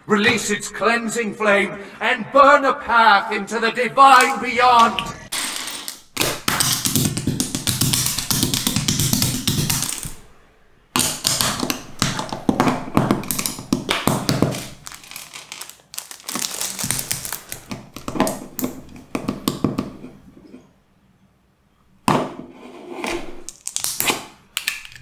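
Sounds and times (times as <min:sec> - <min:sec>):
plastic bricks clicking together: 0:24.6 - 0:25.0.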